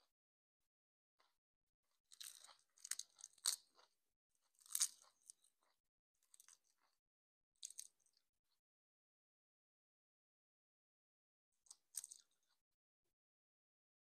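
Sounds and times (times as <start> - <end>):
seaweed sheets crackling and crunching: 4.6 - 5.1.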